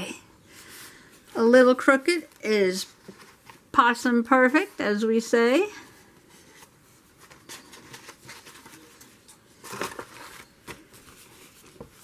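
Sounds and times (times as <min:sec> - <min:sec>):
paper rustling and rubbing: 0:06.2 - 0:12.0.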